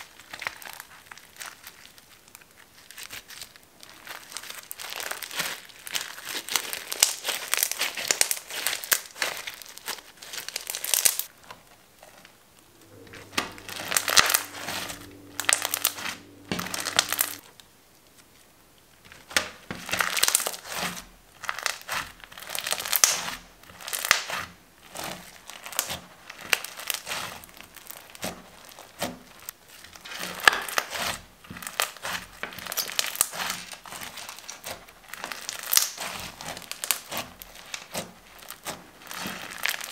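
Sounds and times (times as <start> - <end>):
slime crackling and squishing: 0.0 - 11.3, 21.4 - 39.9.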